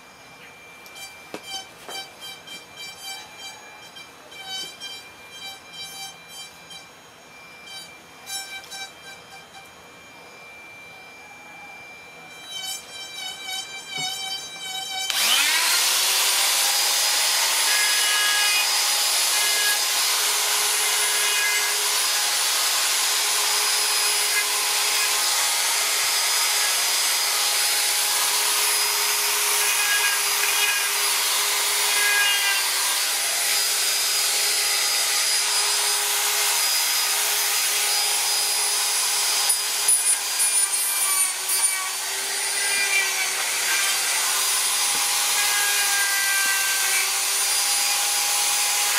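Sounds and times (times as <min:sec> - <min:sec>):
rotary tool grinding wood: 0:12.3 - 0:48.9.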